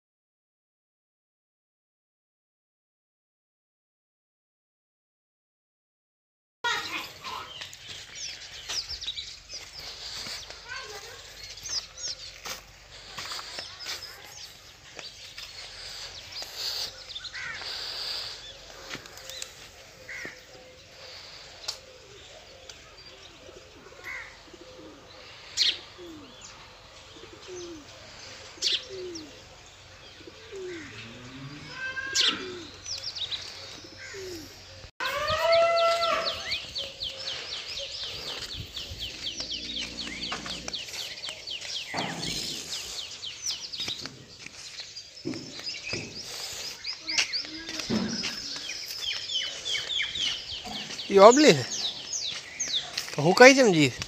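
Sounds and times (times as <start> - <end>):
bird cooing: 18.6 - 34.8, 36.8 - 43.1
high bird chirps: 35.0 - 53.4.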